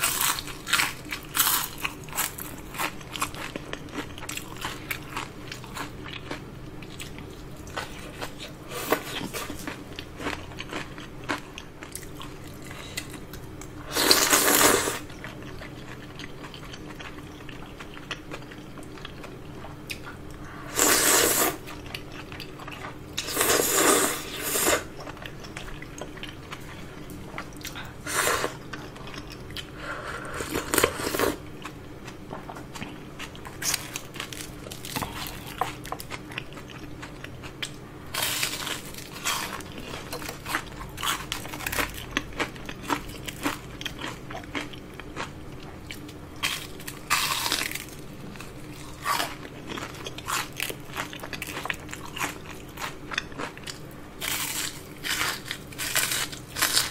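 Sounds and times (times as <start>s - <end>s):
crunchy bites and chewing: 0.0s - 19.3s, 32.7s - 56.9s
slurping noodles: 20.7s - 21.6s.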